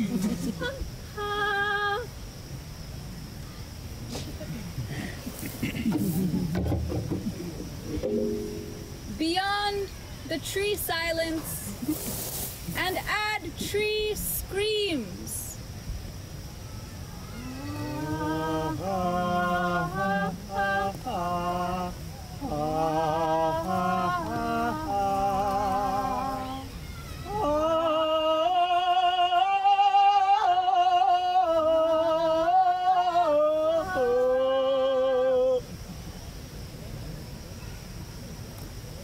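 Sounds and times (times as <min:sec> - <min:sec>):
wordless singing in held notes: 0:08.0 - 0:11.8, 0:17.4 - 0:35.8.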